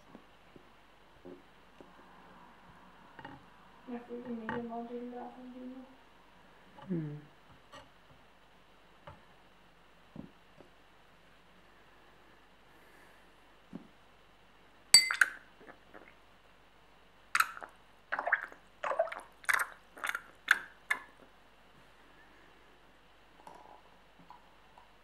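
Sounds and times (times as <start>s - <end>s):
sharp ringing clink: 15.0s - 15.4s.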